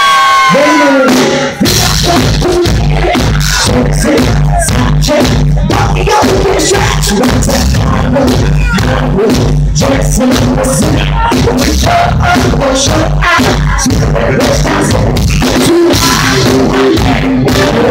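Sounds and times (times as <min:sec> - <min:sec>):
crowd whooping: 0:00.0 - 0:09.2
live band playing: 0:00.0 - 0:17.9.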